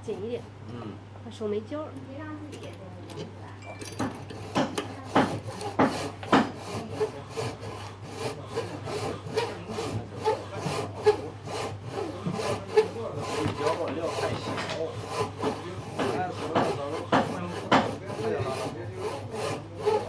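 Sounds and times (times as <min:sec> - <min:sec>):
hand saw cutting wood: 0:04.0 - 0:20.0.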